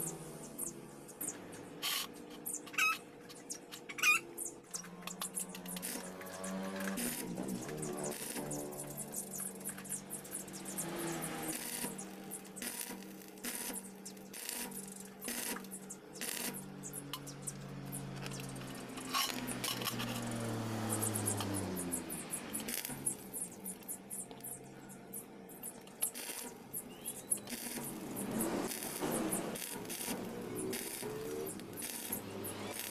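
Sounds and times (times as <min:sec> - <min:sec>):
welding arc crackle: 0:05.0 - 0:32.9
metallic clicks and clinks: 0:16.5 - 0:21.6.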